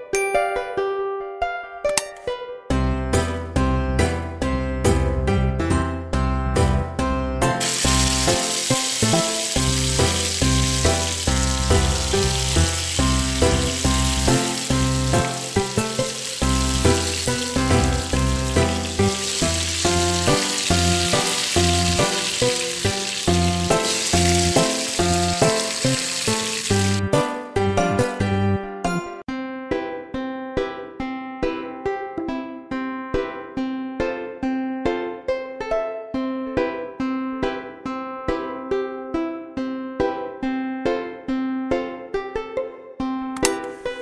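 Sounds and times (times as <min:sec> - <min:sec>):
background music: 0:00.0 - 0:44.0
chicken frying in oil: 0:07.6 - 0:27.0.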